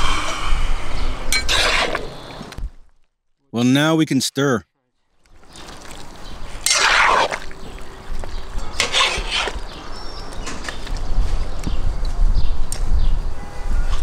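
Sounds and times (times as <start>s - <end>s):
metal skimmer scraping a pot: 8.6s - 9.6s.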